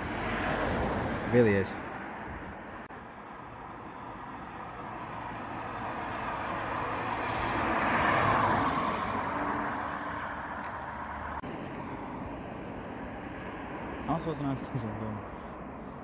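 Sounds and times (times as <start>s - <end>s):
car driving past: 5.1s - 11.9s.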